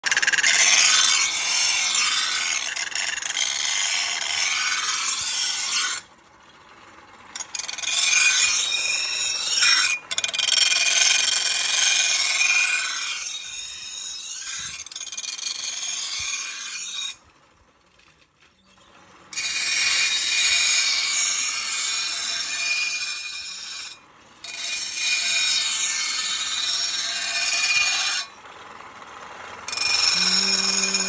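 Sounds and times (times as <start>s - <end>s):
knife grinding on stone: 29.7s - 31.0s.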